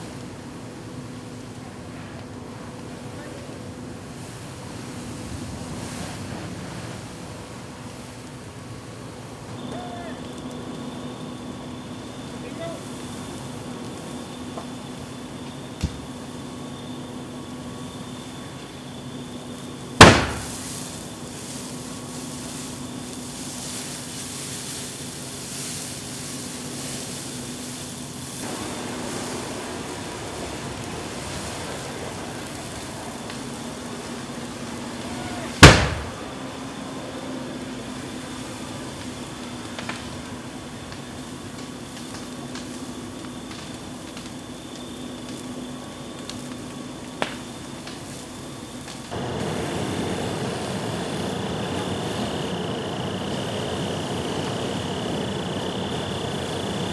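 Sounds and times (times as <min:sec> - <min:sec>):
vehicle fire rushing: 0:00.0 - 0:56.9
loud sharp bang: 0:20.0 - 0:20.6, 0:35.6 - 0:36.2.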